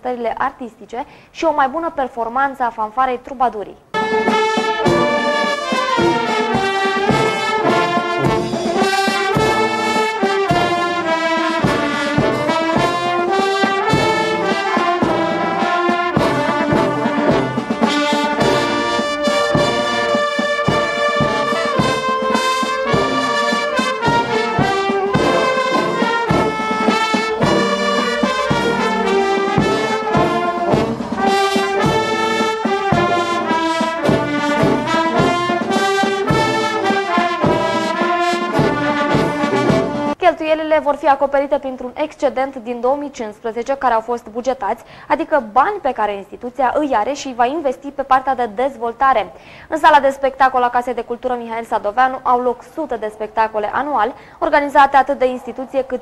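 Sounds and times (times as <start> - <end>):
brass band playing: 3.9 - 40.2
bass drum strokes: 4.0 - 40.2
cymbals: 4.0 - 40.2.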